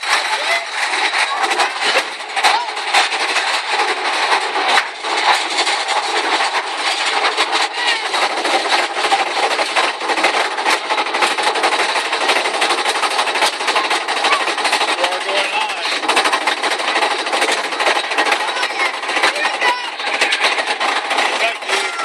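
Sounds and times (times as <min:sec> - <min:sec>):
lift chain clacking rattle: 0:00.0 - 0:22.0.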